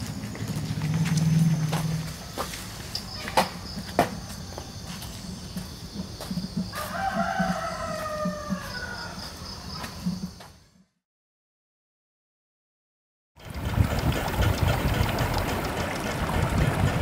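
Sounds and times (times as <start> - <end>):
rooster crowing: 6.6 - 9.8.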